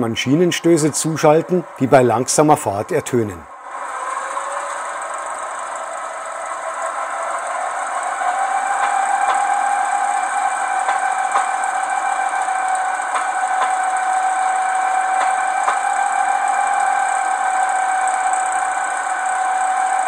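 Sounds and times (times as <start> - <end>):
diesel engine running: 0.0 - 20.0
rail-joint clicks: 7.4 - 18.6.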